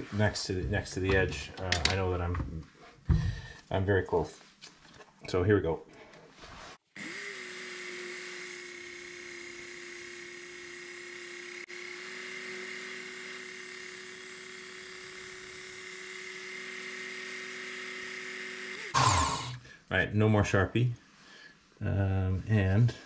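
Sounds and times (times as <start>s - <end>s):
belt sharpener motor humming: 7.0s - 19.5s.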